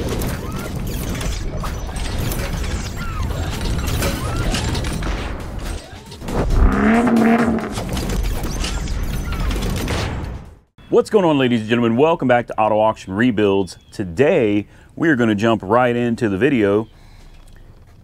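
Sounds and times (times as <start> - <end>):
pitched sweep: 6.2 - 8.0
deep low rumble: 6.3 - 8.0.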